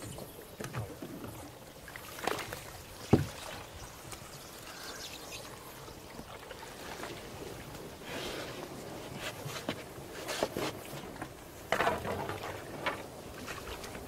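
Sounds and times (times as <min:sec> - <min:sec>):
water trickling and sloshing: 0:00.0 - 0:14.0
knocks on boat: 0:03.1 - 0:03.4.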